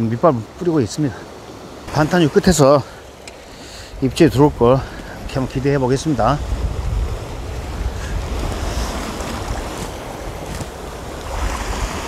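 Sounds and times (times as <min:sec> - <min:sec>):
sea waves washing over rocks: 0:00.0 - 0:12.0
wind buffeting microphone: 0:03.8 - 0:12.0.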